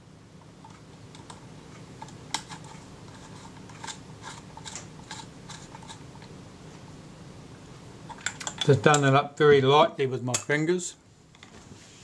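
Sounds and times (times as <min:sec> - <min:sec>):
small metal clicks and scrapes: 0:00.6 - 0:06.3.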